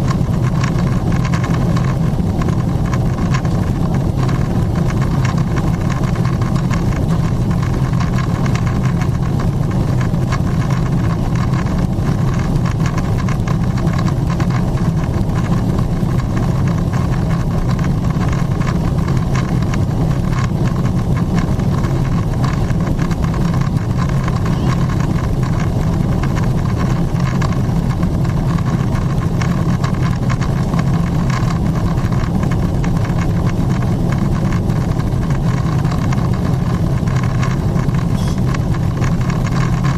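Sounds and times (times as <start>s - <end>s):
airplane engines droning: 21.6s - 27.0s, 37.8s - 38.8s.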